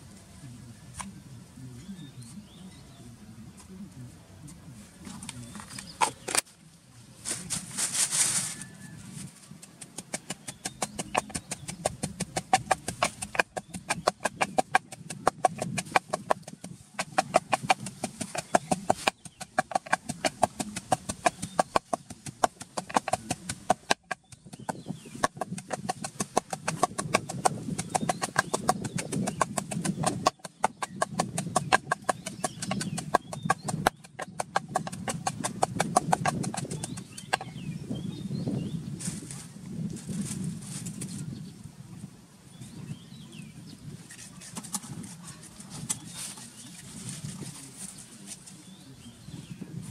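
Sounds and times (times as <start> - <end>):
wooden pestle pounding in mortar: 9.8 - 37.7.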